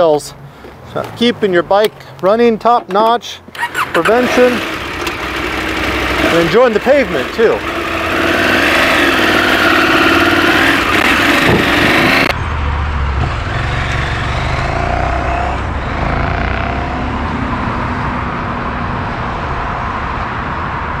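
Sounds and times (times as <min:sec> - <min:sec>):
motorcycle engine accelerating: 0:03.6 - 0:12.5, 0:13.1 - 0:18.5.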